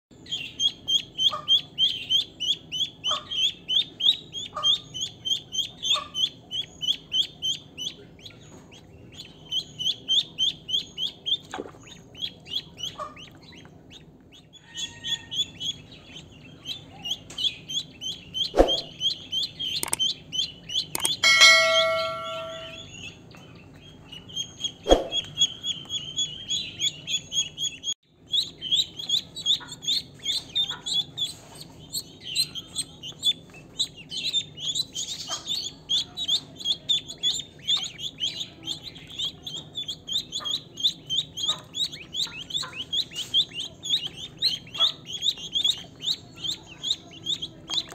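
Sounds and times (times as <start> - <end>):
ducklings peeping: 0.1 - 47.9
brief ringing tone: 21.0 - 22.9.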